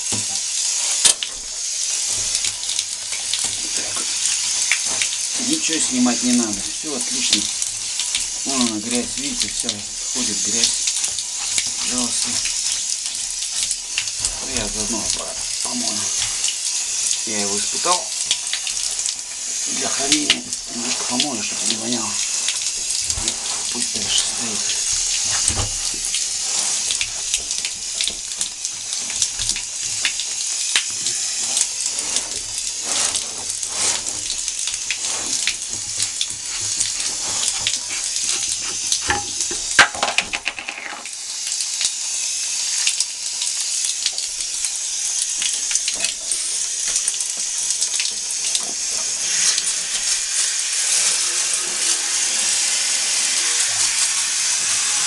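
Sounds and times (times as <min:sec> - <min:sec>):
sponge scrubbing: 0:00.0 - 0:39.8
water running from shower head: 0:00.0 - 0:55.0.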